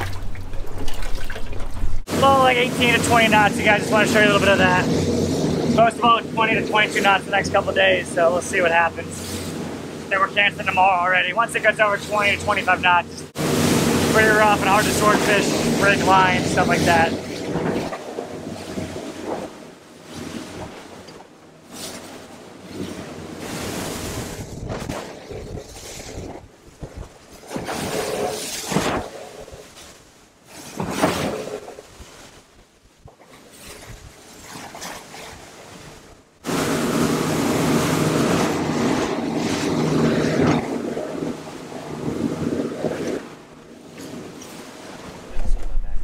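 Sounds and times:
wind buffeting microphone: 0.0 - 10.8, 22.6 - 29.7, 36.7 - 46.0
churning wake spray: 0.0 - 32.5, 33.3 - 46.0
water rushing past hull: 0.0 - 46.0
outboard motors droning: 1.8 - 24.8, 34.2 - 45.6
water spray rushing past hull: 12.1 - 19.5.

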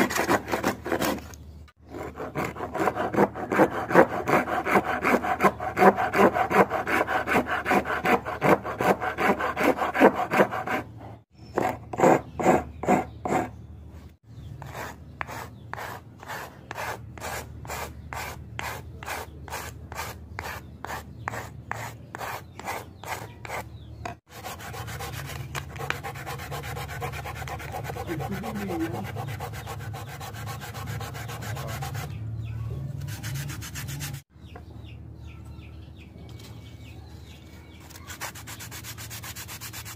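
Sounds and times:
file rasping on wood: 0.0 - 1.2, 1.9 - 10.9, 11.6 - 13.5, 14.6 - 23.7, 24.3 - 32.2
sandpaper rubbing wood: 2.1 - 10.9, 14.6 - 23.7, 24.3 - 32.2, 33.0 - 34.2, 37.9 - 39.9.

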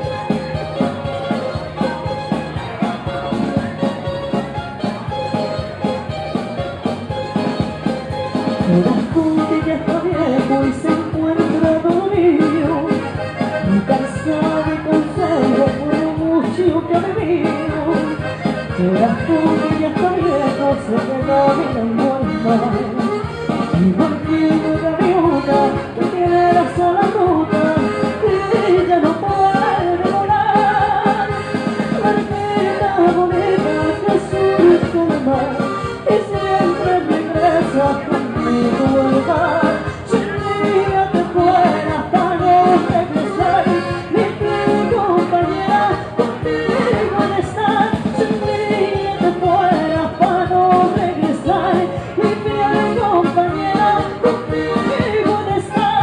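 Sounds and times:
steady beat: 0.0 - 20.2
accordion: 0.0 - 56.0
keyboard: 0.0 - 56.0
woman singing into microphone: 8.6 - 56.0.

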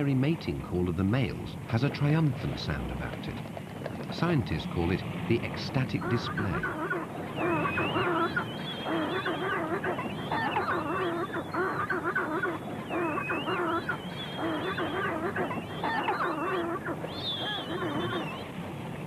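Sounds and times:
penguin braying honks: 6.0 - 18.3.

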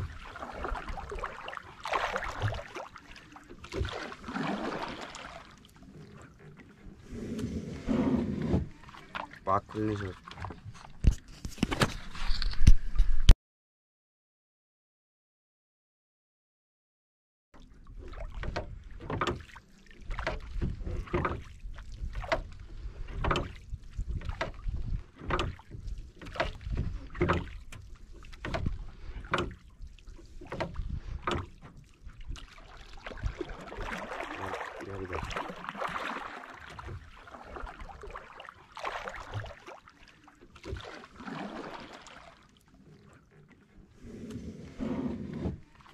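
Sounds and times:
water splashing: 0.0 - 12.1, 23.3 - 44.1, 45.6 - 45.9.

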